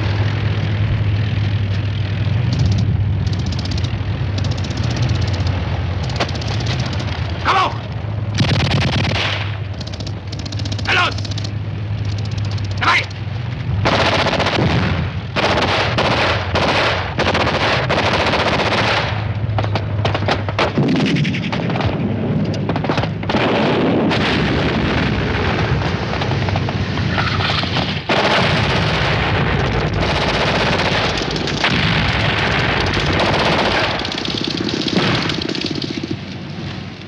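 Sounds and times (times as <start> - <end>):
explosions: 13.8 - 18.0, 18.6 - 36.2
machine gun bursts: 30.0 - 31.8, 32.4 - 36.2.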